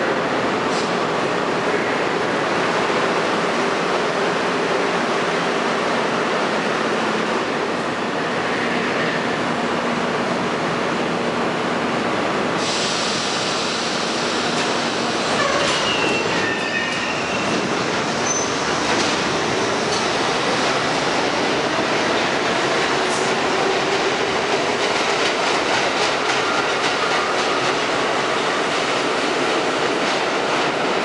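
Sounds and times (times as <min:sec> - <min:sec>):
subway train pulling out: 0:00.0 - 0:31.0
steel wheels clattering on rails: 0:14.4 - 0:20.6, 0:22.8 - 0:30.8
wheel squeal: 0:15.4 - 0:17.6, 0:18.2 - 0:18.6.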